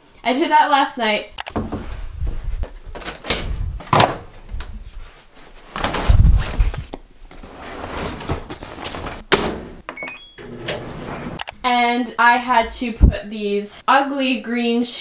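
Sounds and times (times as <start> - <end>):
duvet thuds and rustling: 5.4 - 7.0
short electronic beeps: 10.0 - 10.4.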